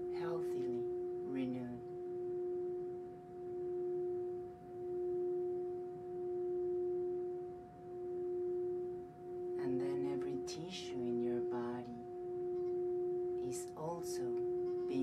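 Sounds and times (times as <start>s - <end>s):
singing bowl tone: 0.0s - 15.0s.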